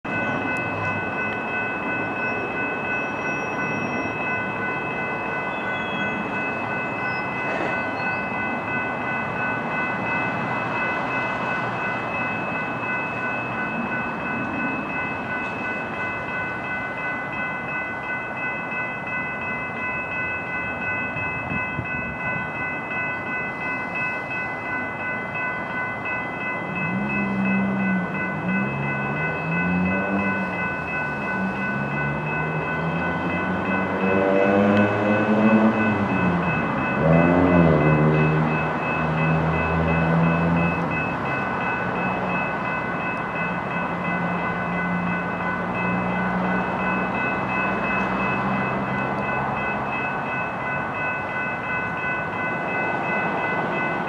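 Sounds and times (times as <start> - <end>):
locomotive engine and rail rumble: 0.0 - 54.0
wavering low tone: 26.6 - 50.1.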